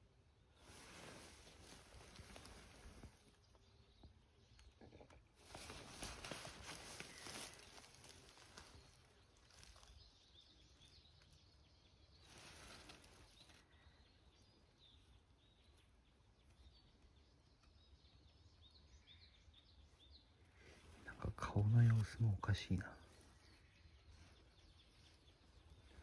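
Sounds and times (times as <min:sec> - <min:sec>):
faint bird chirps: 0:00.0 - 0:26.0
soft rustles: 0:00.6 - 0:03.7, 0:05.3 - 0:11.4, 0:12.0 - 0:14.0, 0:23.1 - 0:26.0.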